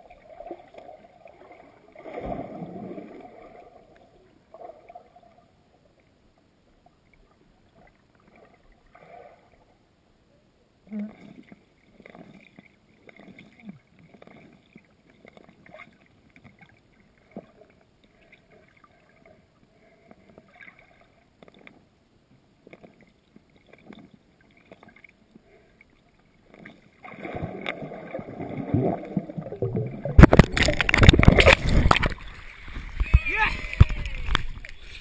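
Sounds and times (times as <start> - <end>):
water sloshing and splashing: 0.0 - 5.4, 22.6 - 35.0
faint ticks underwater: 10.8 - 27.8
rushing disturbed water: 27.2 - 35.0.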